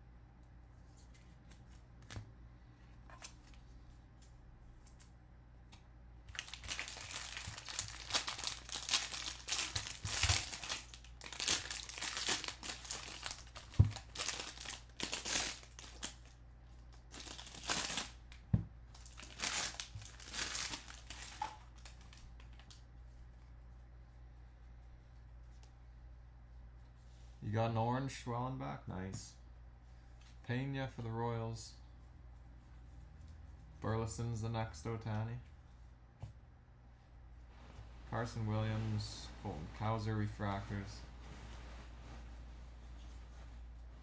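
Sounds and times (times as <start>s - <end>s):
foil wrapper tearing and crinkling: 6.3s - 16.4s, 17.0s - 18.2s, 19.0s - 22.2s.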